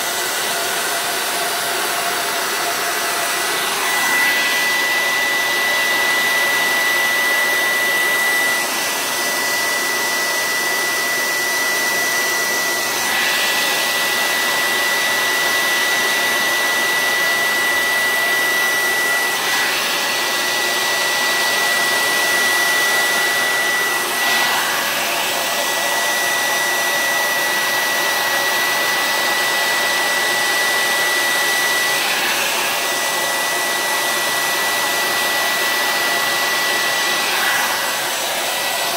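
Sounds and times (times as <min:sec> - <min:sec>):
hair dryer running: 0:00.0 - 0:38.9.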